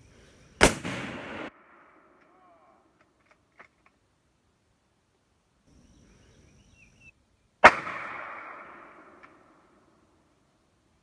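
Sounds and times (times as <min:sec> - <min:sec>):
rifle shot with echo: 0:00.6 - 0:02.2, 0:07.6 - 0:09.8.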